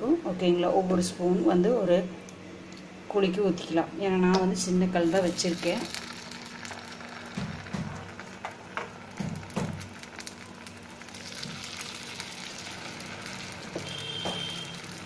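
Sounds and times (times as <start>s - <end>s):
batter sizzling in hot oil: 4.9s - 15.0s.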